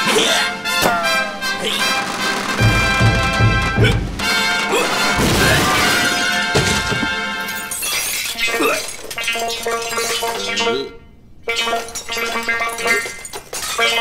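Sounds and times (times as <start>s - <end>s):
wordless character vocals: 0.0s - 2.0s
cartoon music: 0.2s - 7.2s
dish shattering on floor: 4.2s - 9.5s.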